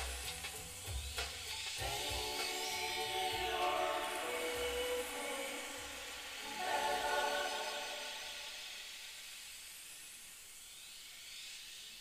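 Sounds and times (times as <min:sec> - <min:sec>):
faint hiss: 0:00.0 - 0:12.0
choral chord on loudspeakers: 0:01.8 - 0:08.9.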